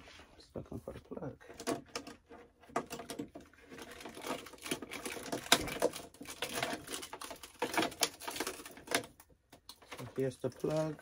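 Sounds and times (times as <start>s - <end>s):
packaging crinkling and rustling: 2.7s - 11.0s.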